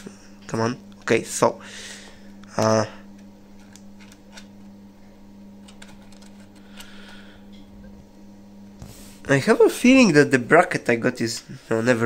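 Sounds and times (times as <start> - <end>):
steady low hum: 0.0 - 12.0
small parts clicking and tapping: 5.6 - 6.9.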